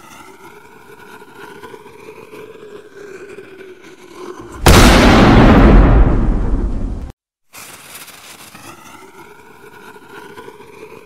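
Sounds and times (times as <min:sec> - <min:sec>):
loud explosion blast: 0:04.6 - 0:07.1.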